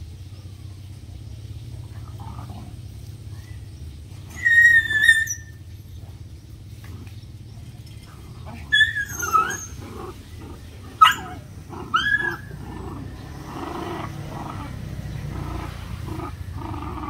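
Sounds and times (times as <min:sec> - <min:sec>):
puppies growling: 0:01.7 - 0:17.0
puppies yelping and whining: 0:04.2 - 0:05.7, 0:08.3 - 0:17.0.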